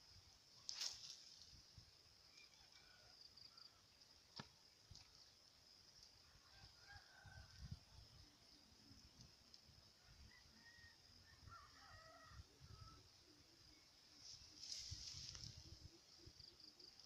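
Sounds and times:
steady high hiss: 0.0 - 2.6, 12.4 - 17.0.

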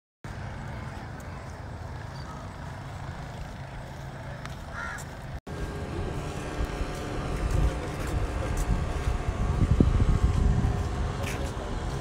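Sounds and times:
open-air rumble and hiss: 0.3 - 12.0.

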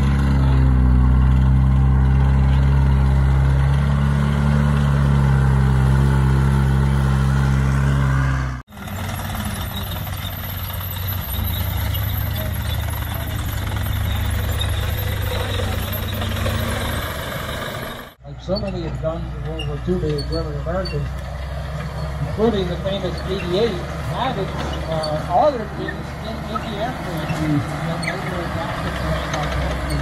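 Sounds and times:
low engine hum: 0.0 - 30.0
vehicle engine idling: 0.0 - 30.0.

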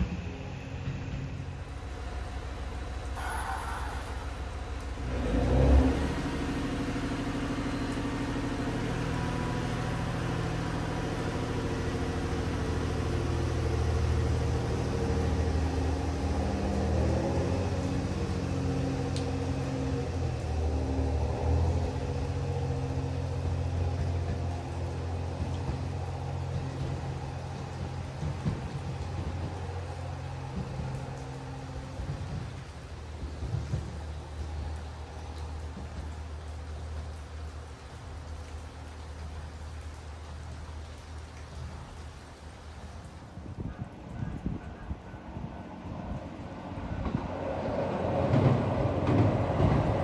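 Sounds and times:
diesel engine running: 0.0 - 38.2.

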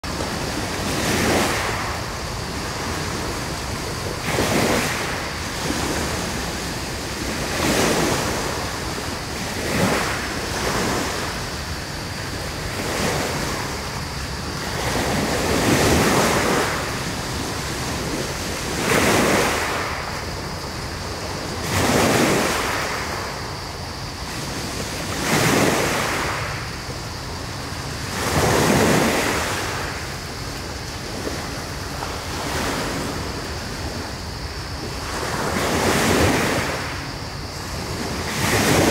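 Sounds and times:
waves breaking on pebble beach: 0.0 - 11.4.

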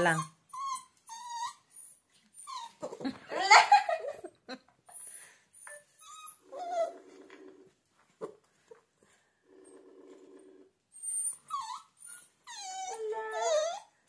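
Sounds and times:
puppy whining and yelping: 0.0 - 3.8, 4.8 - 7.5, 10.8 - 14.0.

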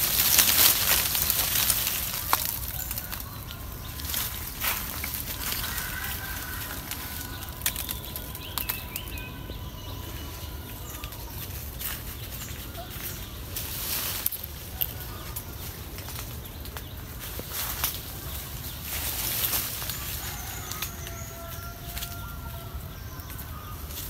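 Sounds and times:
twigs snapping: 0.0 - 9.3
leaves and twigs rustling: 0.0 - 24.0.

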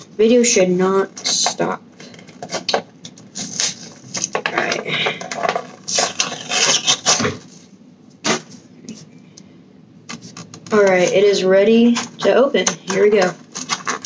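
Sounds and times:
cardboard rubbing and crinkling: 5.6 - 7.6, 10.1 - 14.0.

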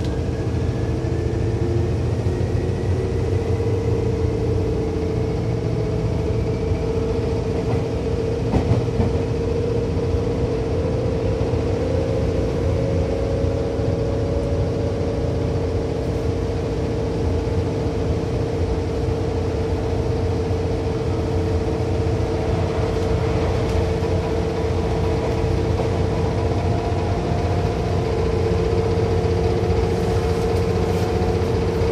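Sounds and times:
train wheels rumbling on rails: 0.0 - 31.9
traction motor whine: 18.0 - 31.9.

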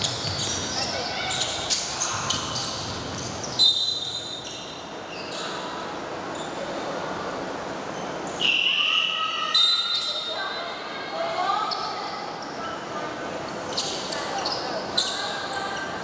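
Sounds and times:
sneakers squeaking: 0.0 - 7.0, 9.5 - 10.6, 11.6 - 12.8, 13.4 - 16.0.

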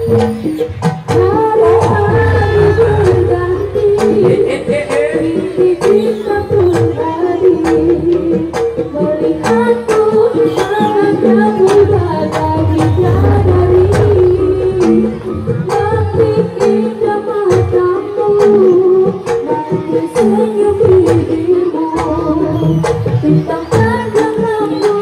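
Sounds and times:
person singing: 1.1 - 25.0
low pitched repeated strokes: 1.6 - 6.0, 12.6 - 16.6
sharp drum strokes: 12.3 - 16.8.

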